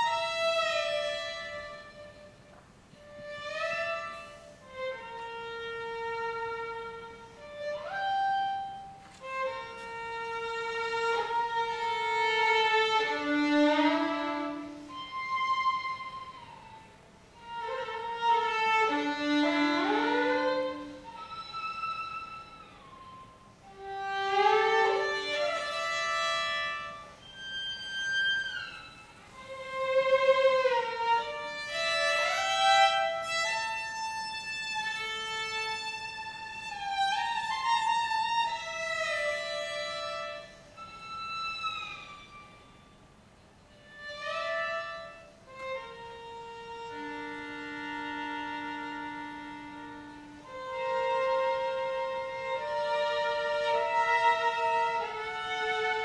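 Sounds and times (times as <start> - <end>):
solo violin melody: 0.0 - 56.0.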